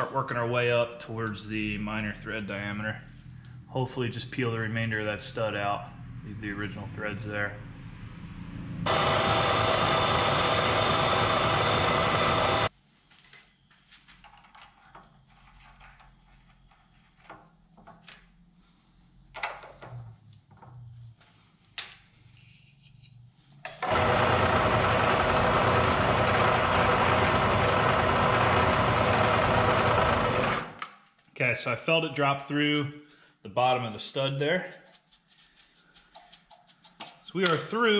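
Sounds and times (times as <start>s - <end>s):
milling machine drilling metal: 8.9s - 12.7s, 23.7s - 30.7s.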